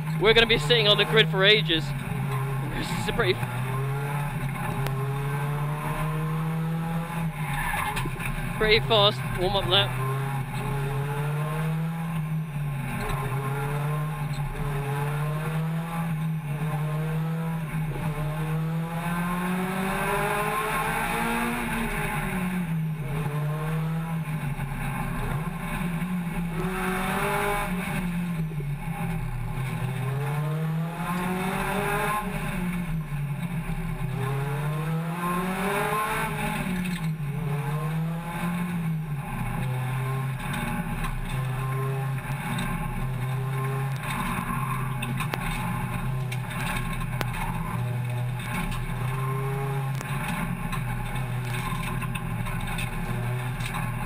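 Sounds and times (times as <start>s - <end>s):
car engine revving: 0.0s - 54.0s
road and wind noise: 0.0s - 54.0s.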